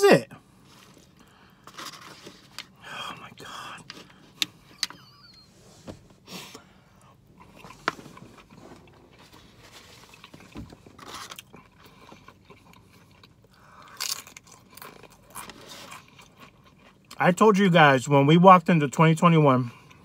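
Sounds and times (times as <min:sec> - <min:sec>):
person chewing and crunching food: 0:06.5 - 0:17.2.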